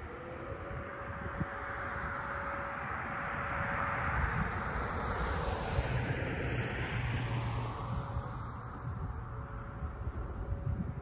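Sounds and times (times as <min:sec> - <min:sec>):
aircraft passing overhead: 0:00.0 - 0:11.0.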